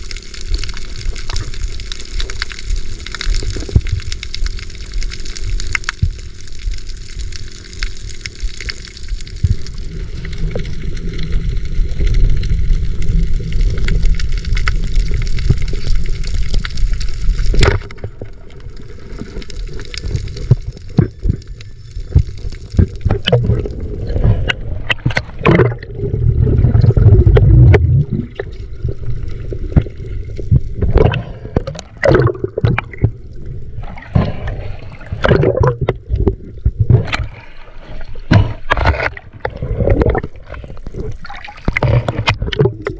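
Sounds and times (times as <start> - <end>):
water gurgling and splashing: 0.0 - 42.9
water rushing: 22.0 - 42.9.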